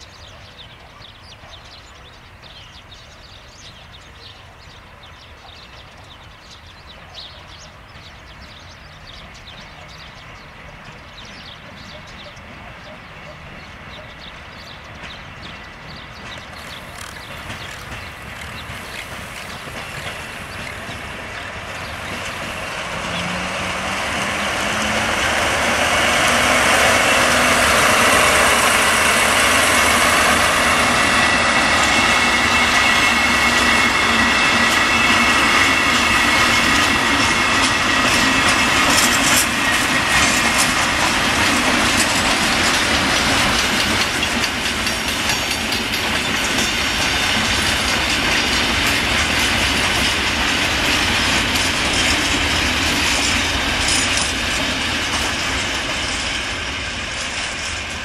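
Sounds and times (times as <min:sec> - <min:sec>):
diesel locomotive engine: 0:00.0 - 0:58.0
wheels clicking over rail joints: 0:14.8 - 0:58.0.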